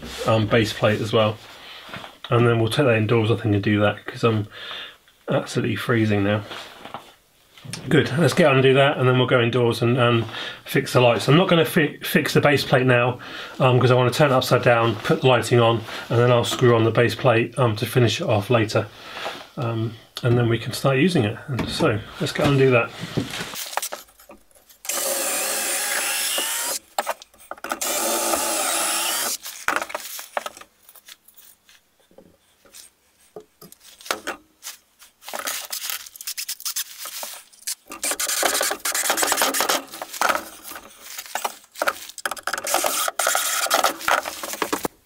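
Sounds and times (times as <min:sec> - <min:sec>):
cordless drill driving screws: 0:24.9 - 0:26.8, 0:27.8 - 0:29.4.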